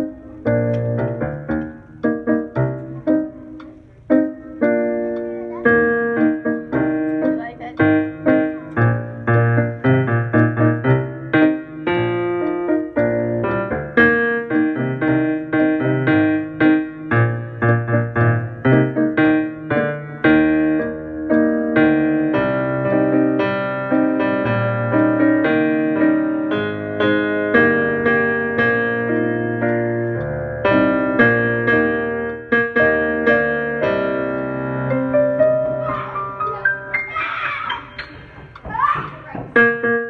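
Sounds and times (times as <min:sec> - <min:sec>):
piano playing chords: 0:00.0 - 0:40.0.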